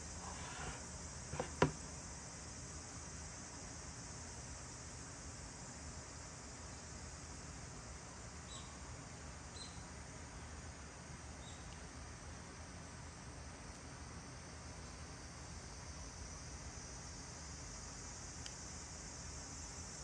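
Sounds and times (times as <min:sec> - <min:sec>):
faint background hiss: 0:00.0 - 0:20.0
faint high squeaks: 0:00.2 - 0:01.7.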